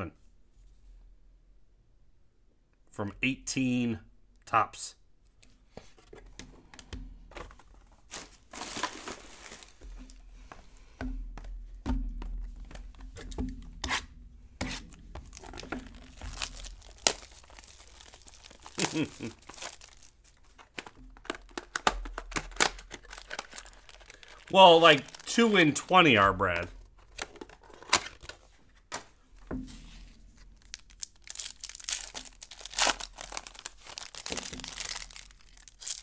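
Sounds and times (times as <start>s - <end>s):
cardboard and plastic wrapper tearing: 8.1s - 10.2s, 15.2s - 26.0s, 27.0s - 28.4s, 30.6s - 36.0s.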